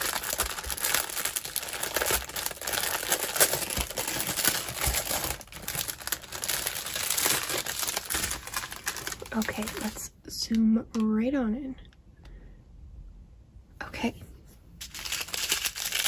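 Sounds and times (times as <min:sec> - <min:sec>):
plastic bags crinkling: 0:00.0 - 0:10.1, 0:14.8 - 0:16.0.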